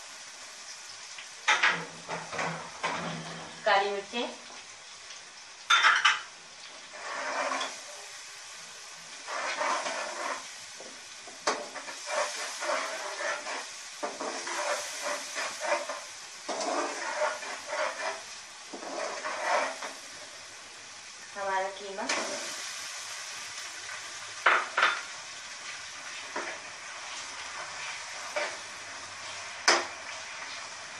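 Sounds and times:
paste sizzling in hot oil: 0:00.0 - 0:30.9
spoon stirring and scraping pot: 0:05.7 - 0:06.3, 0:06.9 - 0:08.1, 0:09.1 - 0:20.3, 0:24.4 - 0:30.7.

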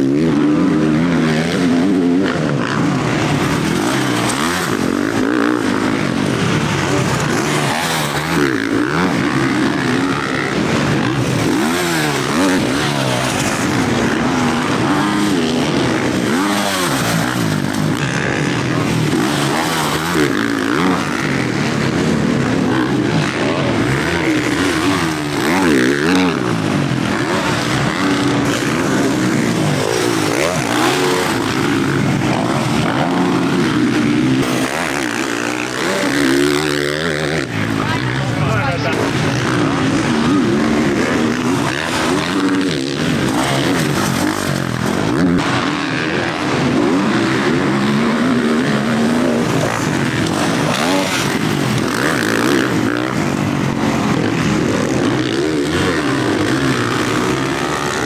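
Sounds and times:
motocross bike engines revving: 0:00.0 - 0:58.0.

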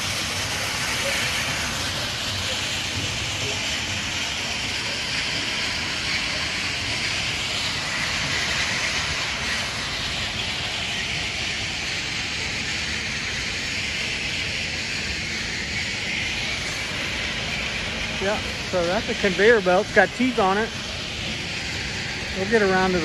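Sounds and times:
conveyor belt mechanical noise: 0:00.0 - 0:23.0
low rumble: 0:15.9 - 0:23.0.

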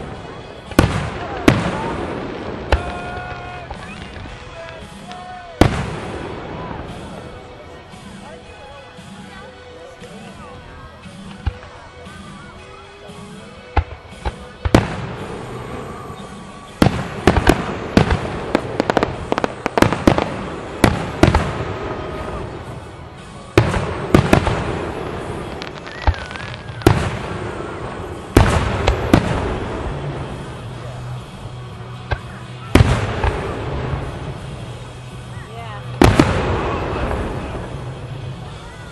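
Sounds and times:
fireworks bangs: 0:00.0 - 0:08.0, 0:13.2 - 0:38.7
fireworks crackle: 0:00.0 - 0:38.9.

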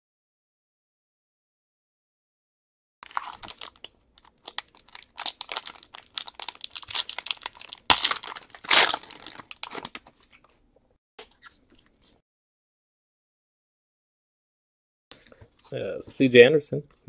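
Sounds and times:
foil wrapper crinkling and tearing: 0:03.0 - 0:10.1.

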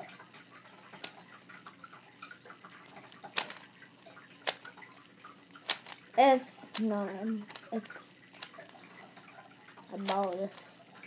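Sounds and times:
puzzle cube clicking: 0:02.9 - 0:03.7, 0:04.4 - 0:04.7, 0:05.6 - 0:06.0, 0:06.7 - 0:08.8, 0:10.0 - 0:10.6.

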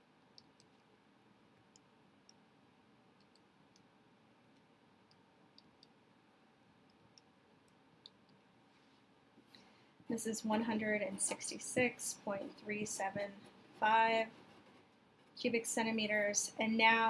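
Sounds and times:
small irregular clicks: 0:00.2 - 0:06.1, 0:06.7 - 0:10.1.

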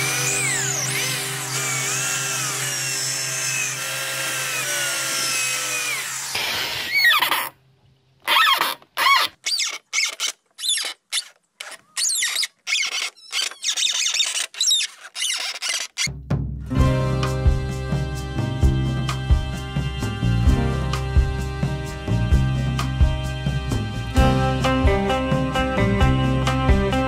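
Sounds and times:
cordless drill motor whine: 0:00.0 - 0:07.4, 0:08.3 - 0:16.1
screw squealing in wood: 0:06.7 - 0:07.5, 0:08.2 - 0:16.1.

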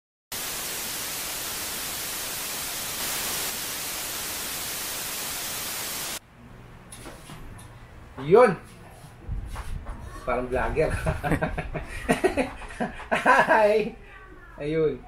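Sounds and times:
white noise hiss: 0:00.3 - 0:06.2.

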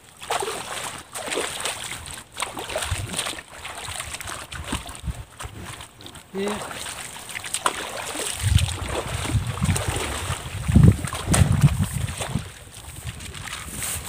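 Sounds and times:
shallow water sloshing and splashing: 0:00.0 - 0:14.0
low wind rumble: 0:08.4 - 0:14.0.

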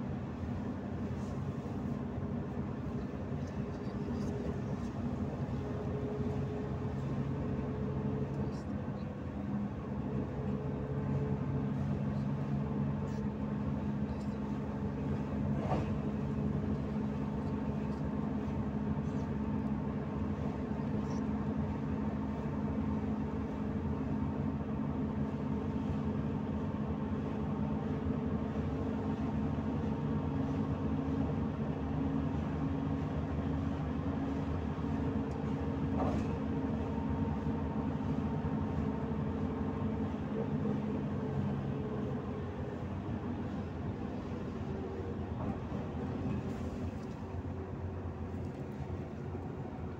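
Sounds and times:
bus engine hum: 0:00.0 - 0:49.9
road noise: 0:26.6 - 0:49.9.

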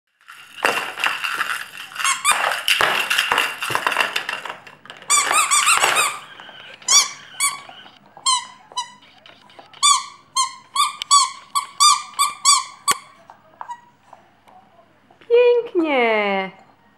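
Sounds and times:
squeaky toy ball squeaking: 0:00.6 - 0:04.3, 0:05.0 - 0:14.0.

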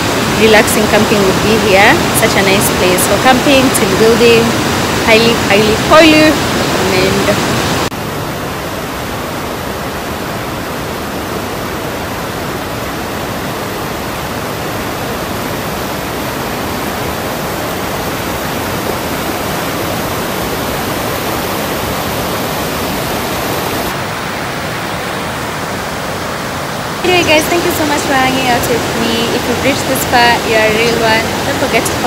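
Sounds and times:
river rapids rushing over rocks: 0:00.0 - 0:32.0.

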